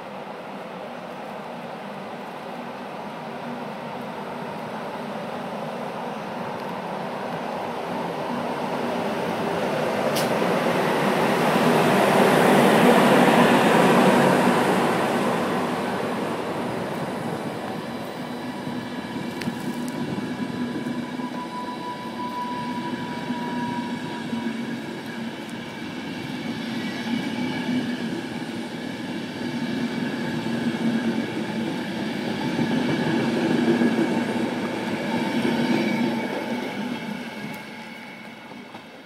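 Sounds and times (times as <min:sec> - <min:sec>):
train wheels rumbling on rails: 0:01.1 - 0:39.0
faint thin squeal: 0:20.9 - 0:24.8.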